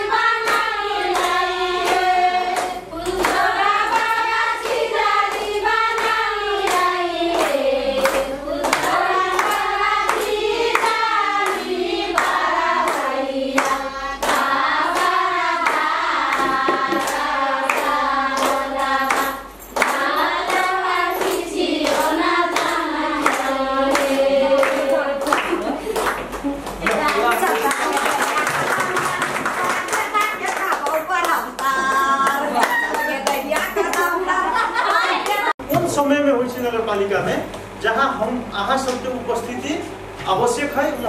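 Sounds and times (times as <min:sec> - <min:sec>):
group singing: 0:00.0 - 0:26.0.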